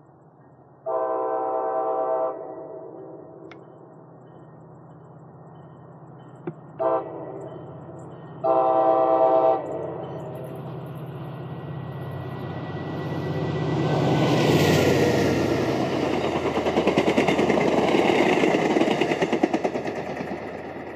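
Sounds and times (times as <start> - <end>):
train horn blasts: 0.8 - 3.4, 6.8 - 7.5, 8.4 - 9.9.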